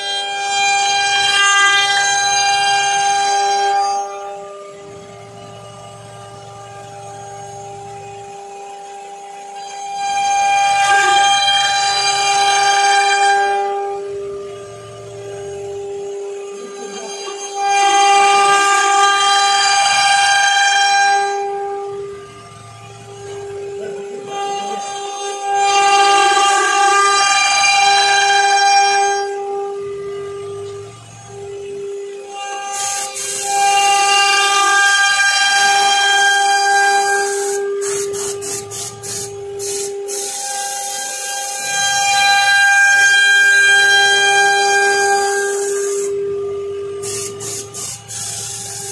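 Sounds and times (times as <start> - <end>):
router spindle whining while cutting wood: 0.0 - 48.9
air blow gun hissing: 32.7 - 34.1, 36.4 - 42.0, 45.2 - 46.2, 47.0 - 48.9.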